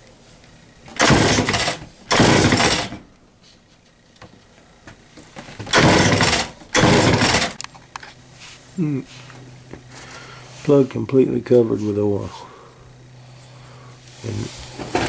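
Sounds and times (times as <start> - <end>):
chainsaw pull-start cranking: 0.9 - 3.0, 5.7 - 7.6.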